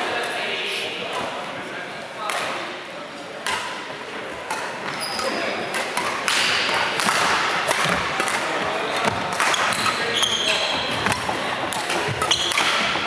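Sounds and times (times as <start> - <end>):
background hubbub of play: 0.0 - 13.0
racket hitting shuttlecock: 3.4 - 13.0
shoes squeaking on wooden court: 4.3 - 7.2, 7.8 - 13.0.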